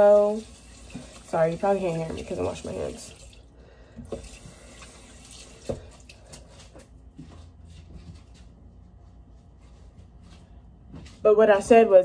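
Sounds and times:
tap water running into sink: 0.0s - 6.2s.

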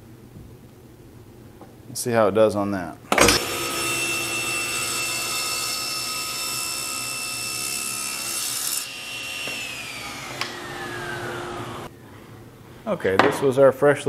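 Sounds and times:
saw cutting wood: 3.2s - 11.9s
table saw whine: 3.2s - 11.9s
saw blade coasting down: 3.4s - 11.9s.

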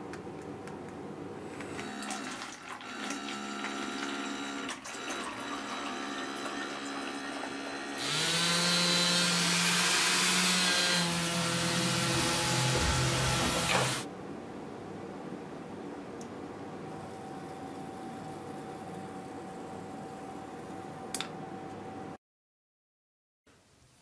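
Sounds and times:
pump motor whine: 1.5s - 14.1s.

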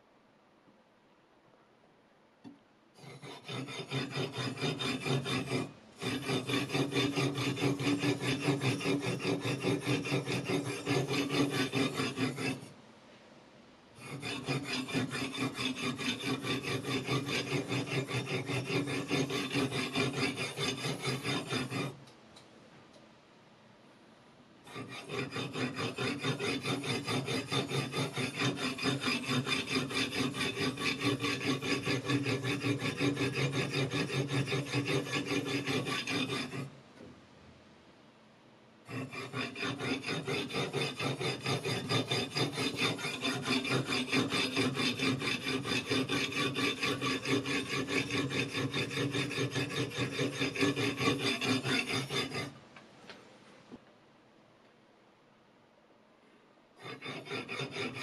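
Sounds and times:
whetstone rasping on knife edge: 3.0s - 12.7s, 14.0s - 22.0s, 24.7s - 36.7s, 38.9s - 52.6s, 56.8s - 58.0s.

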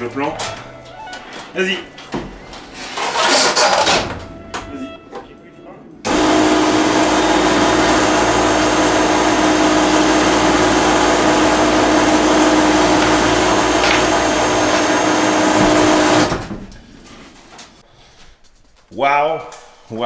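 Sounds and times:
electric motor humming: 6.1s - 16.3s.

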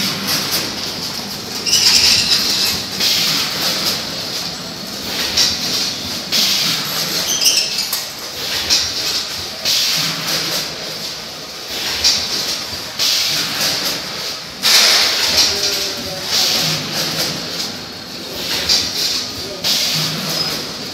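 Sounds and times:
steady mechanical clatter: 0.0s - 20.9s.

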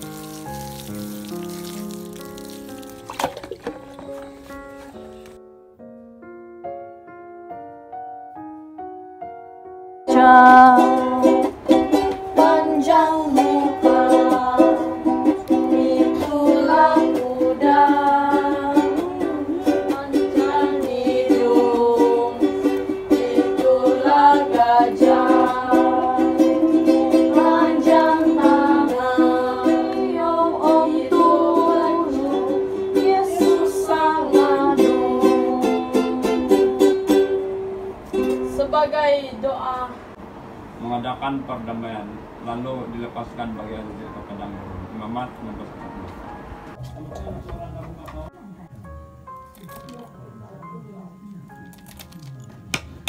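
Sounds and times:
people singing: 10.1s - 36.9s
strummed stringed instrument: 10.1s - 38.6s.

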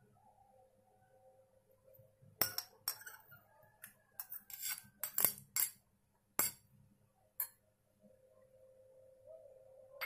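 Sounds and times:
metal spoon scraping glass dishes: 2.4s - 5.8s, 6.4s - 6.6s.

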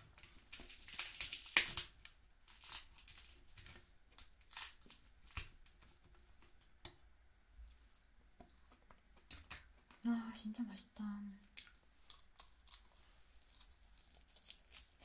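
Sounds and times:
crab shells cracking: 0.5s - 3.4s, 4.2s - 5.6s, 11.5s - 15.0s.

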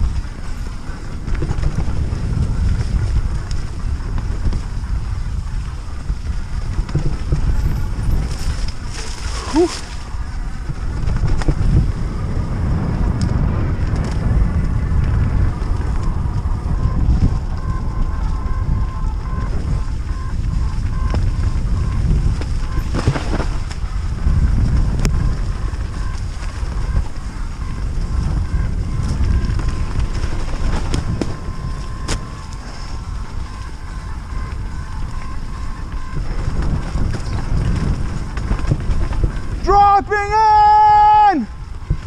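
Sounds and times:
bike knocking over bumps: 0.0s - 39.7s
wind buffeting microphone: 0.0s - 42.0s.

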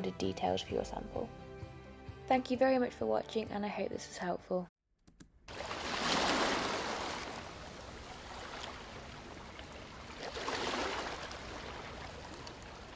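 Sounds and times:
ocean waves washing: 5.5s - 12.9s.

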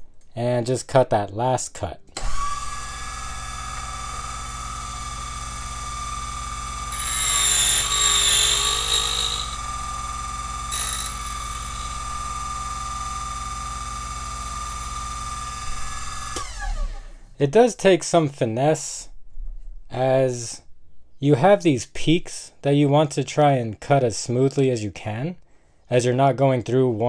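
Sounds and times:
key cutting machine motor whine: 2.2s - 17.0s
machine switching off: 2.2s - 17.1s
cutter wheel cutting key: 6.8s - 15.1s.

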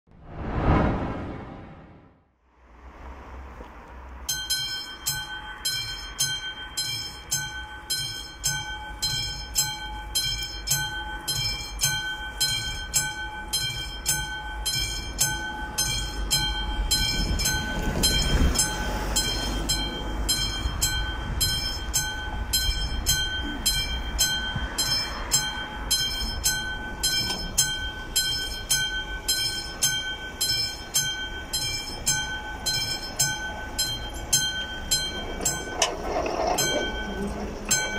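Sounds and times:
low rumble: 0.1s - 2.2s
level crossing bell ringing: 18.6s - 37.9s.

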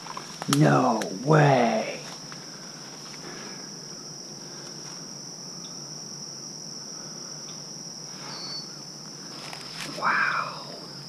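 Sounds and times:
insects buzzing trill: 0.0s - 11.0s
faint ticks: 7.4s - 7.7s.

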